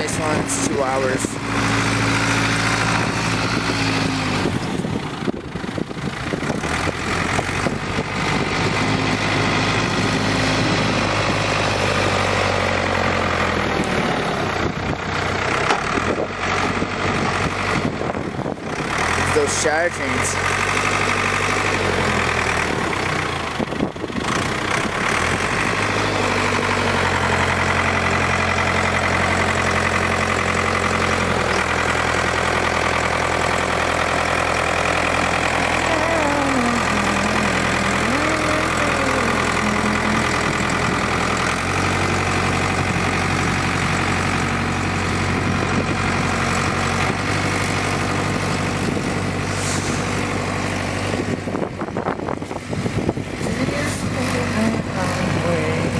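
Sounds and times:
diesel engine under load: 0:00.0 - 0:55.9.

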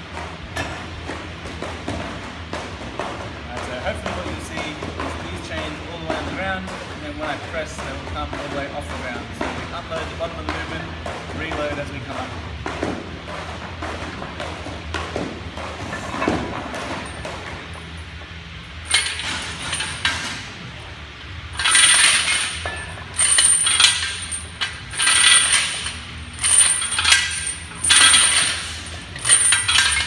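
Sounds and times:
steel chains jangling on floor: 0:18.9 - 0:20.2, 0:21.6 - 0:30.0.

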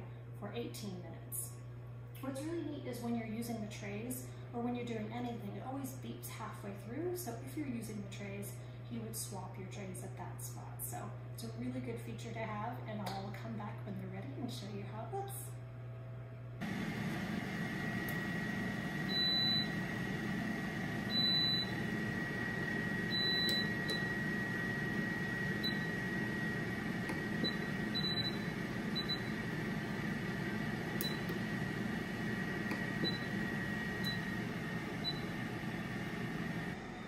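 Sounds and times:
air fryer fan whirring: 0:01.8 - 0:37.0
control panel beeps: 0:19.1 - 0:19.8, 0:21.1 - 0:21.8, 0:23.1 - 0:24.2, 0:25.6 - 0:26.0, 0:27.4 - 0:29.4, 0:31.0 - 0:31.4, 0:32.7 - 0:33.4, 0:34.0 - 0:34.4, 0:35.0 - 0:35.3.

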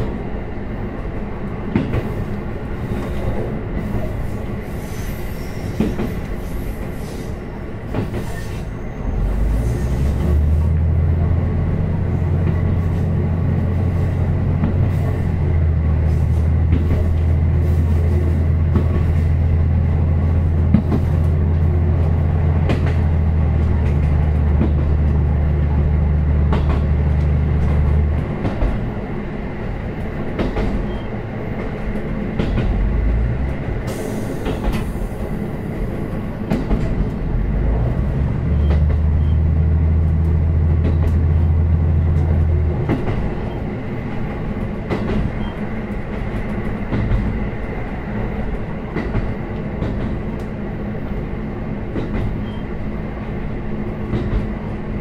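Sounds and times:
wheels clicking over rail joints: 0:36.4 - 0:43.6.

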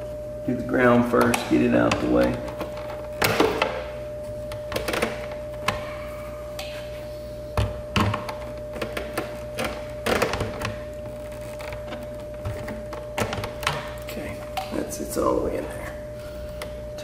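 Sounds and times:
low hum: 0:00.0 - 0:17.0
wire clicking and knocking: 0:04.5 - 0:05.8, 0:07.6 - 0:14.8.

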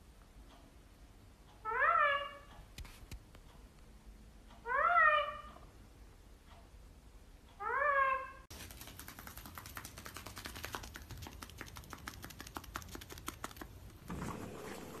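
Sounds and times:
parrot feet tapping on a mat: 0:08.5 - 0:14.0.

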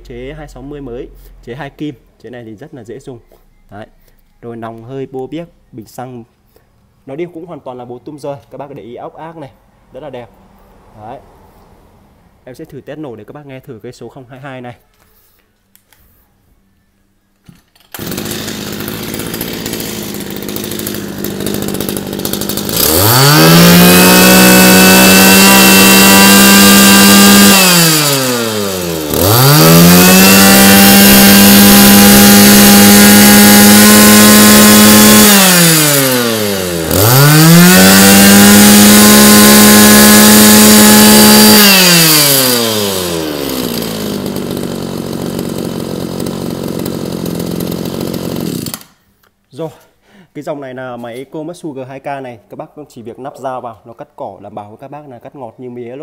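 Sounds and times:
brush cutter engine revving: 0:17.8 - 0:49.0.

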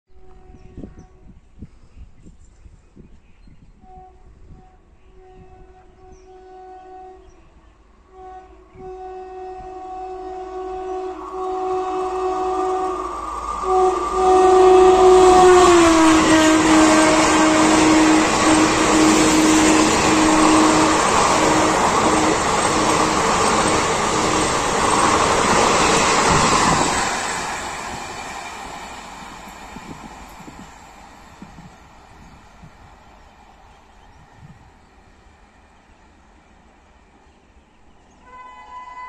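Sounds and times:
locomotive horn blasts: 0:00.1 - 0:01.4, 0:03.8 - 0:26.9, 0:38.2 - 0:39.0
train coaches rushing and rattling: 0:11.7 - 0:34.6.

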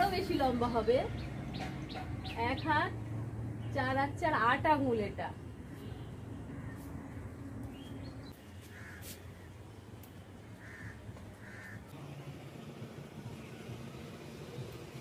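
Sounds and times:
crow cawing: 0:08.6 - 0:09.5, 0:10.5 - 0:11.9.

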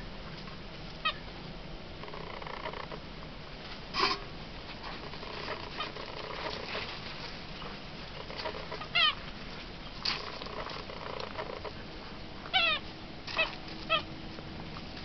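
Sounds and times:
puppy whining: 0:05.2 - 0:06.8, 0:07.6 - 0:09.2, 0:12.5 - 0:14.1.

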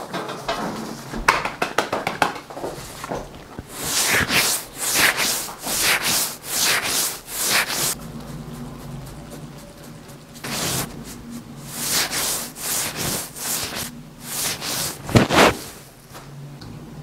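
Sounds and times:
gloved hands rubbing beard stubble: 0:02.8 - 0:08.0, 0:10.4 - 0:15.8.

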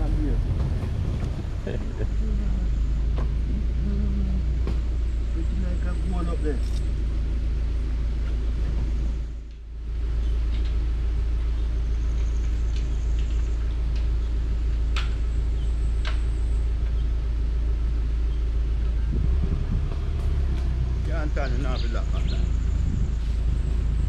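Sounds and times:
engine low rumble: 0:00.0 - 0:24.0.

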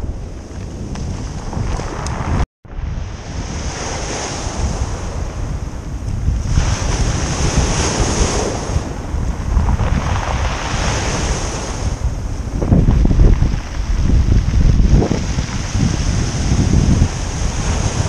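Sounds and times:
wind buffeting microphone: 0:00.0 - 0:18.0
small waves washing up pebble beach: 0:06.4 - 0:12.0, 0:12.9 - 0:18.0.

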